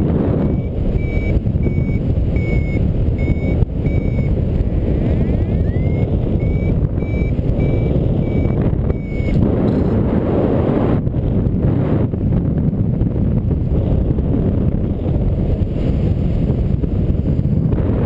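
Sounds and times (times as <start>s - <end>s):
wind rushing on microphone: 0.0s - 18.0s
short high beeps: 0.5s - 4.3s, 5.6s - 9.4s
rising chirp: 5.3s - 9.4s.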